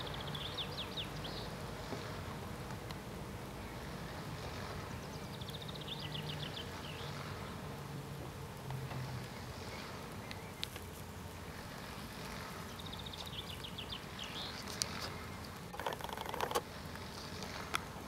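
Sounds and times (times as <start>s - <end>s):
low steady background hum: 0.0s - 18.0s
crackling rustle: 6.5s - 18.0s.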